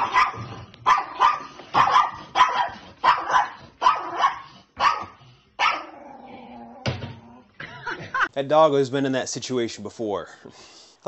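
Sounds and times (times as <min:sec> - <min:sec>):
small dog barking: 0:00.0 - 0:06.0.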